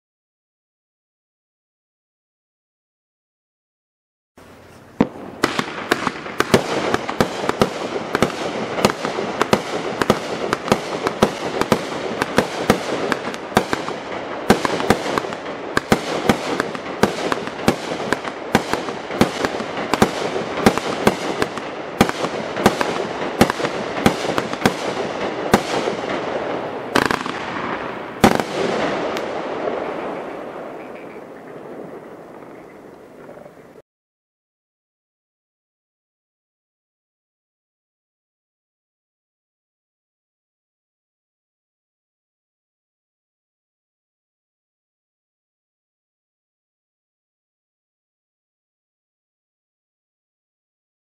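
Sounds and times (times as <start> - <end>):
fireworks shots crackling: 4.4 - 33.3
loud fireworks bangs: 5.0 - 32.8.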